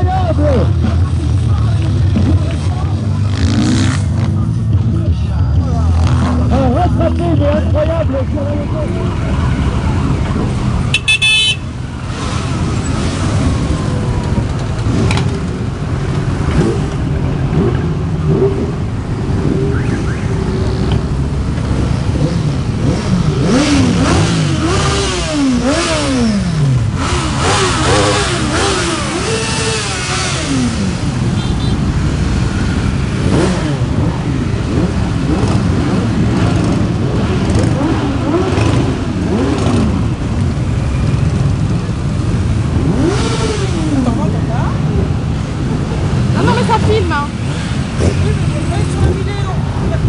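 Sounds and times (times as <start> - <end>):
motorcycles riding past: 11.9 - 50.0.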